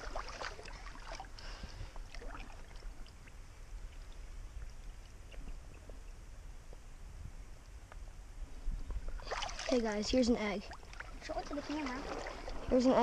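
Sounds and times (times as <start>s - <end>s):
creek water sloshing and trickling: 0.0s - 6.0s, 8.9s - 13.0s
small ticks and light splashes: 0.0s - 6.1s, 8.9s - 12.7s.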